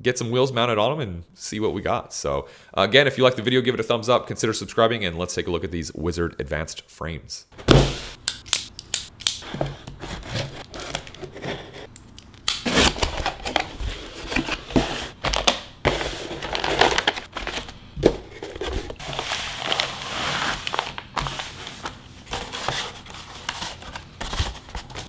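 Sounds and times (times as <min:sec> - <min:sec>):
paper and plastic rustling: 0:12.7 - 0:25.0.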